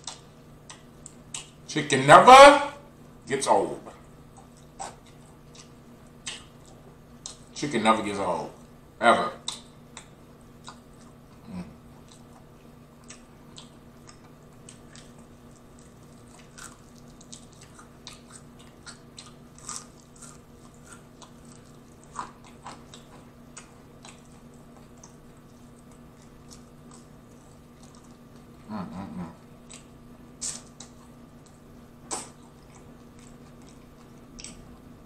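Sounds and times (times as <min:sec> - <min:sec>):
faint steady hum: 0:00.0 - 0:35.0
short hummed voice: 0:01.8 - 0:02.9, 0:11.3 - 0:11.9, 0:28.6 - 0:29.5
biting and chewing food: 0:09.4 - 0:28.7, 0:29.3 - 0:35.0.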